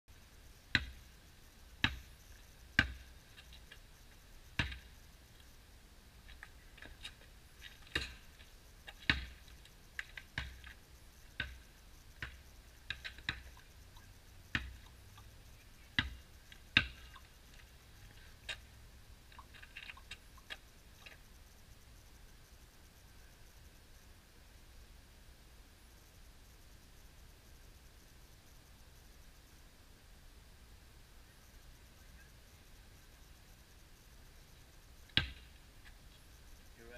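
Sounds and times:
basketball bouncing on asphalt: 0:00.7 - 0:01.1, 0:01.8 - 0:03.8, 0:04.5 - 0:05.0, 0:06.3 - 0:13.7, 0:14.5 - 0:15.3, 0:15.9 - 0:18.6, 0:35.1 - 0:35.5.

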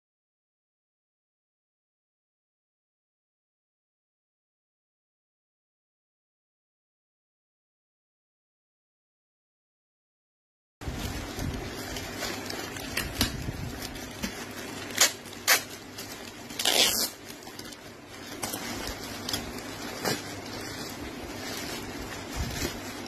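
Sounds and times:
plastic bag crinkling: 0:10.8 - 0:23.0.

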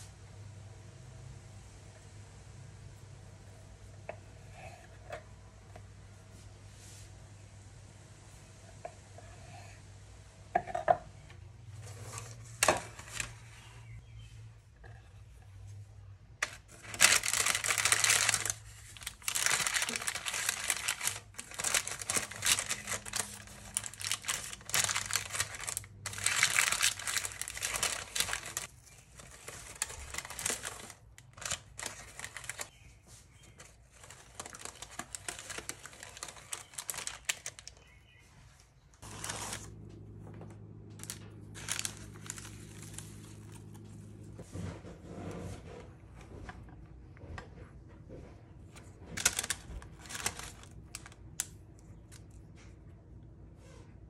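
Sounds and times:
low steady hum: 0:00.0 - 0:54.0
sheet crinkling and rustling: 0:16.4 - 0:38.0, 0:39.0 - 0:47.4, 0:48.1 - 0:52.8.

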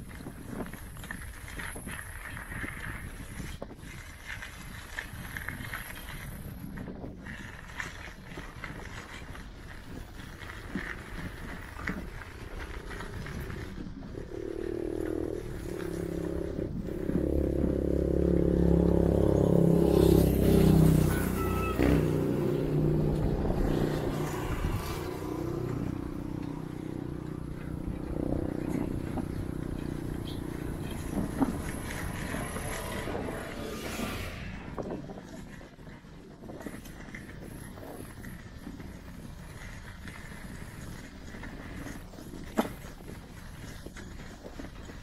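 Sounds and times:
bicycle riding hiss and rattle: 0:00.0 - 0:45.0
vehicle engine passing: 0:12.8 - 0:35.5.

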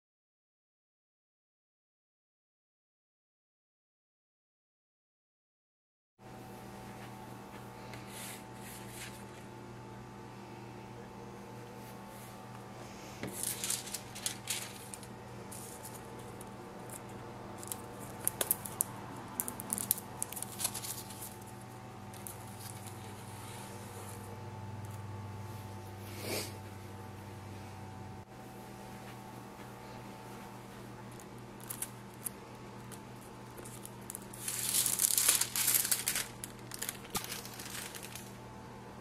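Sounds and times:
steady low hum: 0:06.2 - 0:39.0
foil and paper crinkling: 0:08.2 - 0:09.4, 0:13.2 - 0:24.3, 0:31.2 - 0:38.4.

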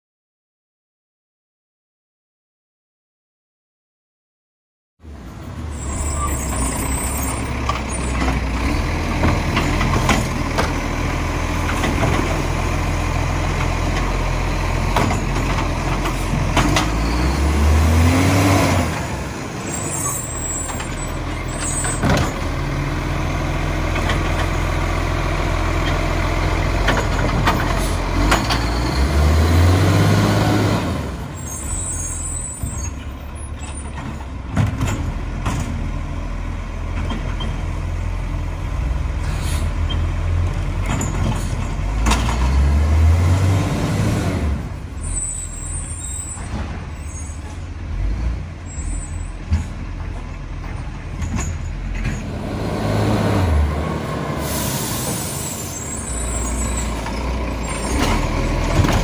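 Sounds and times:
garbage truck diesel engine revving: 0:05.8 - 0:32.4, 0:33.6 - 0:59.0
air brake hisses: 0:54.4 - 0:56.9.

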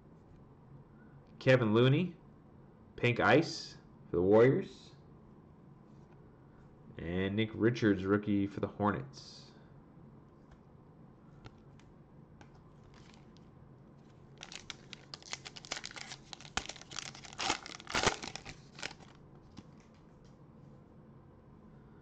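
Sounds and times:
foil wrapper crinkling and tearing: 0:12.9 - 0:13.3, 0:14.4 - 0:20.0.

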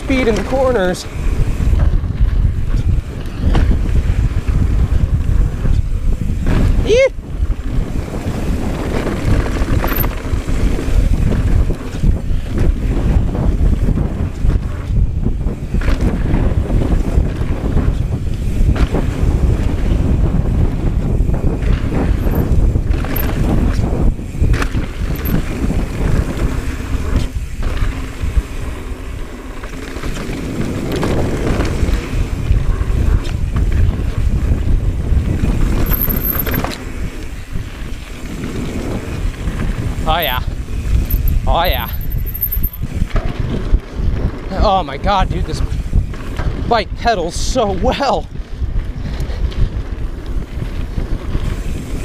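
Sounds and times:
wind buffeting microphone: 0:00.0 - 0:52.0
bike knocks and rattles: 0:01.4 - 0:44.6.

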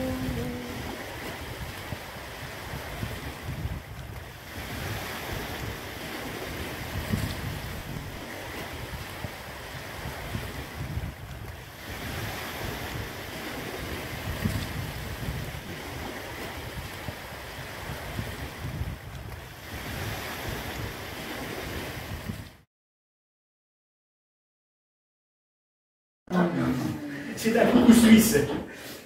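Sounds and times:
sea surf hiss: 0:00.0 - 0:01.6
wind rumbling on microphone: 0:00.0 - 0:22.6.

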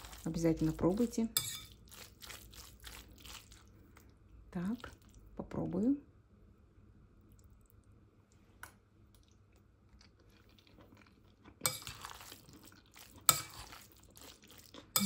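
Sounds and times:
spoon squishing and scraping salad: 0:00.0 - 0:04.1, 0:10.0 - 0:15.0
spoon clinking against glass bowl: 0:01.4 - 0:01.8.

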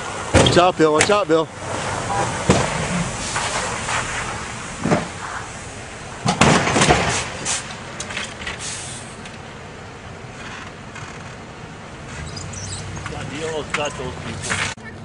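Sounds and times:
traffic on snowy road: 0:00.0 - 0:15.0
sharp knocks and clatters: 0:04.8 - 0:05.4, 0:06.2 - 0:08.6.

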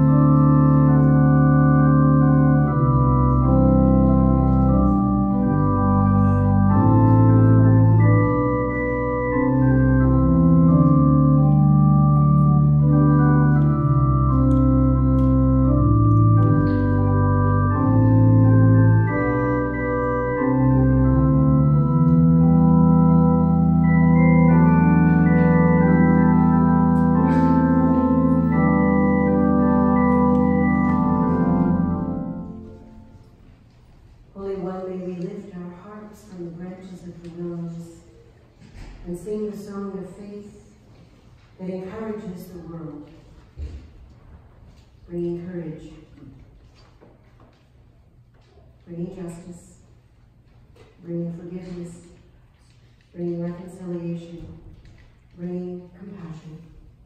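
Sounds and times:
church organ chords: 0:00.0 - 0:38.0.

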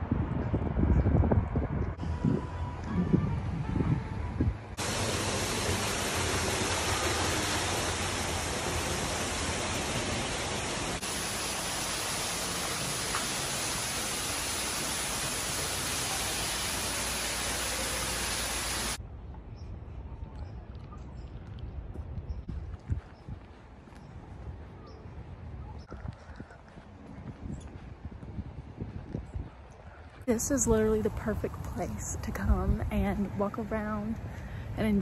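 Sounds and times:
falling water hiss: 0:04.8 - 0:19.0.

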